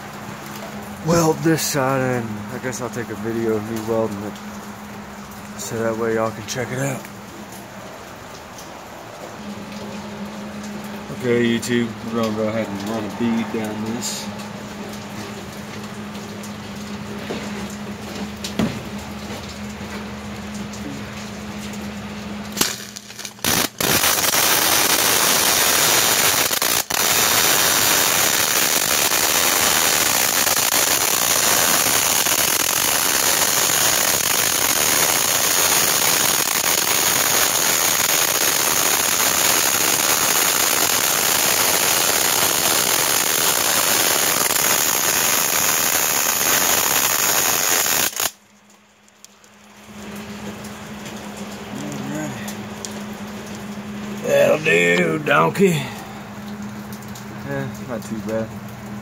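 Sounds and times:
welding arc crackling sizzle: 0.0 - 59.0
welder hum: 22.5 - 48.4.

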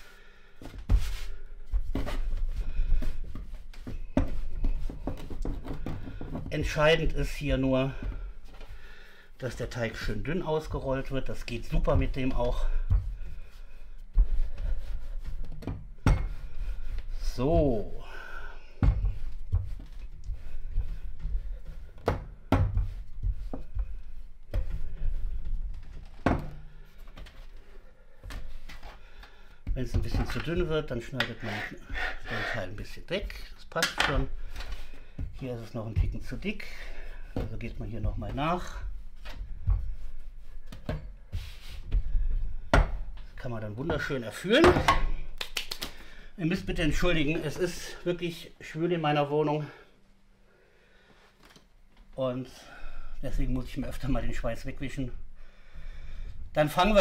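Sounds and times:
rolling pin rolling dough: 9.8 - 18.1, 18.7 - 26.6
rolling pin rumbling over dough: 18.7 - 25.8.

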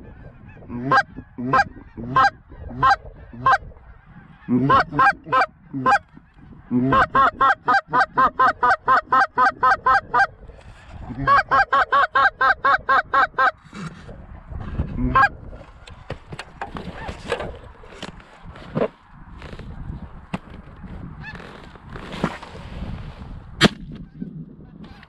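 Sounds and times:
goose call honks: 0.1 - 10.3.

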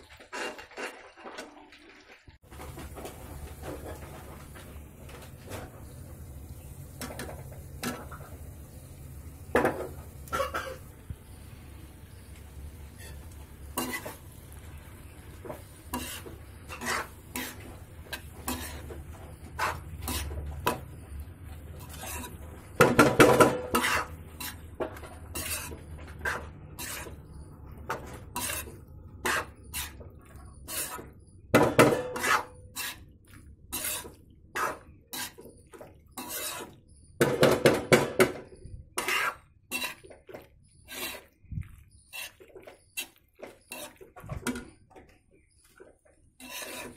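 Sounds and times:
steel spatula scraping metal wok: 12.8 - 37.0, 38.5 - 44.6, 46.4 - 46.9.

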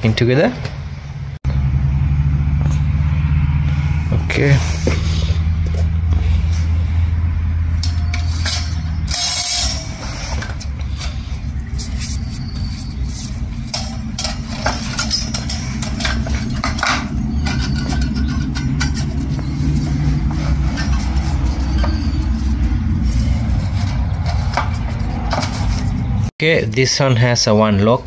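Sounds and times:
low mechanical rumble: 0.0 - 26.3
metal parts clicking and clinking: 7.7 - 26.1.

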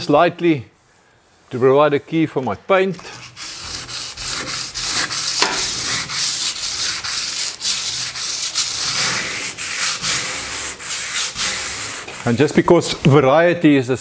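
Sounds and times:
sandpaper rubbing on metal: 3.0 - 12.9.

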